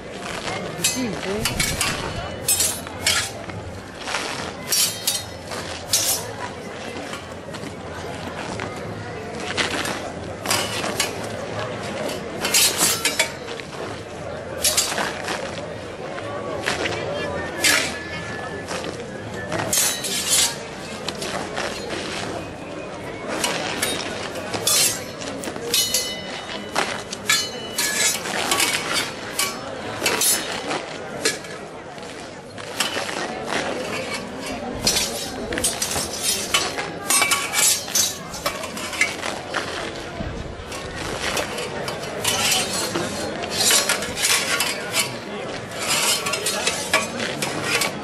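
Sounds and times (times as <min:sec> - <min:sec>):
swords clashing on metal: 0:00.8 - 0:03.4, 0:04.7 - 0:06.3, 0:12.4 - 0:13.4, 0:14.6 - 0:15.2, 0:19.7 - 0:20.6, 0:23.4 - 0:31.6, 0:32.7 - 0:39.3, 0:40.8 - 0:45.2, 0:45.8 - 0:48.0.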